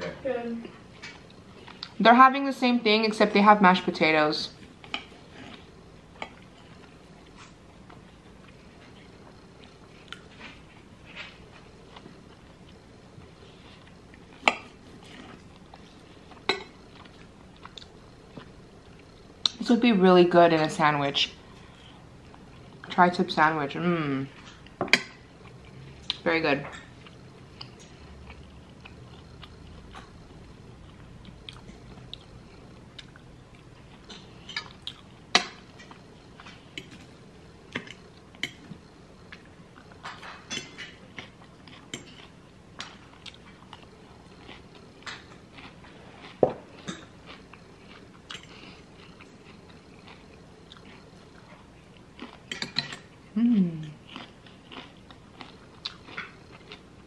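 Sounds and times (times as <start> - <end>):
chewing and biting food: 37.7 - 53.2, 53.8 - 57.0
cutlery clicking against plate: 52.5 - 53.1.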